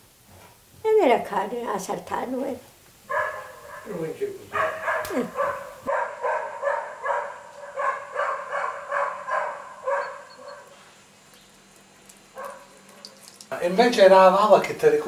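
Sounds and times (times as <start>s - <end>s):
dog barking: 3.1s - 10.8s, 12.3s - 13.0s.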